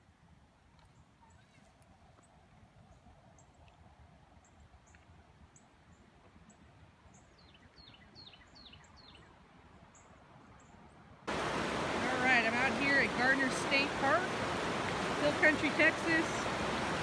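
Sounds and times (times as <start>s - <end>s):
faint birdsong: 0.7s - 3.7s, 4.3s - 11.9s.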